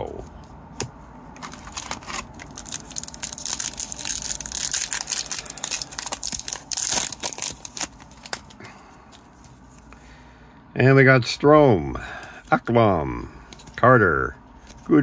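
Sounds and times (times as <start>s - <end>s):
wrapper tearing and crinkling: 1.4s - 8.5s.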